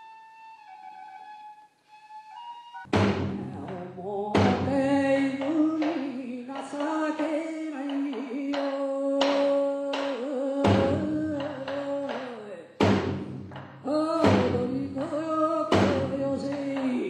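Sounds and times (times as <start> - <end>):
drum struck: 2.9 - 5.8, 10.6 - 11.8, 12.8 - 16.6.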